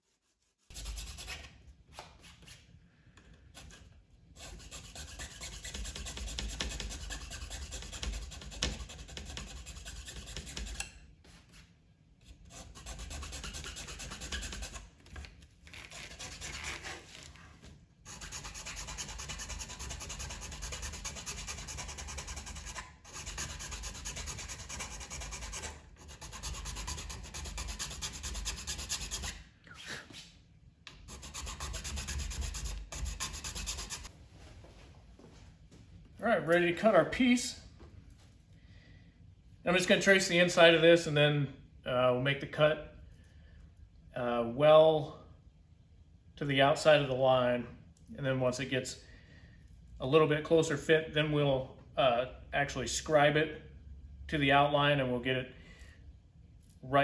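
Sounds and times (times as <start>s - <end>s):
hand file rasping on plastic: 4.4s - 11.0s, 12.4s - 14.9s, 15.7s - 17.0s, 18.1s - 29.4s, 31.1s - 34.1s.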